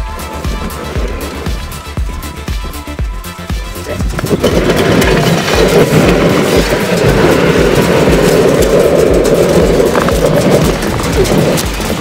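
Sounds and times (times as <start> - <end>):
low buffeting: 0.0 - 12.0
propane burner firing: 4.1 - 12.0.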